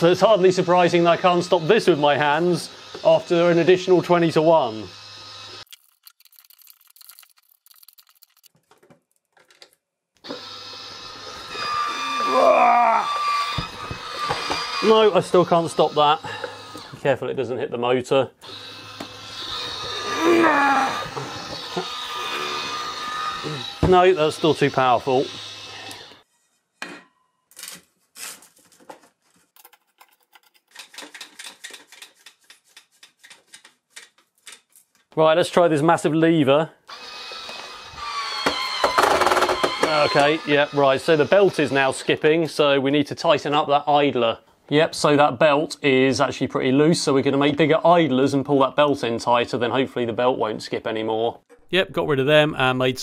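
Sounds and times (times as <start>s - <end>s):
hands handling plastic part: 27.6s - 35.2s.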